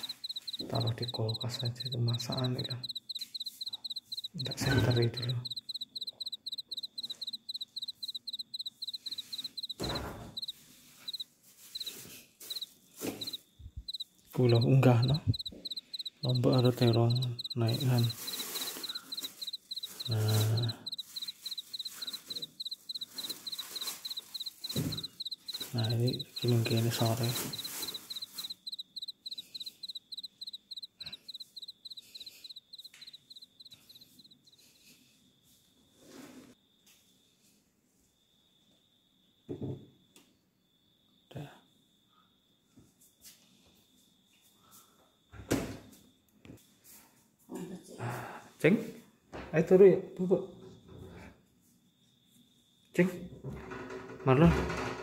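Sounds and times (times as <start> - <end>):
cricket chirping: 0.0 - 35.6, 36.6 - 42.7.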